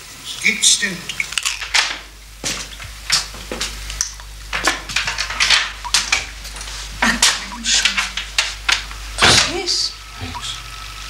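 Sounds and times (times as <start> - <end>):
low voice: 7.0 - 8.2, 10.2 - 10.6.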